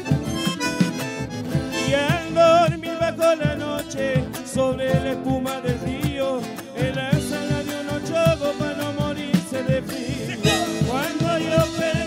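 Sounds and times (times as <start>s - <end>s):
accordion: 0.0s - 12.0s
drums and percussion: 0.0s - 12.0s
strummed acoustic guitars: 0.0s - 12.0s
wavering melody: 10.4s - 11.3s.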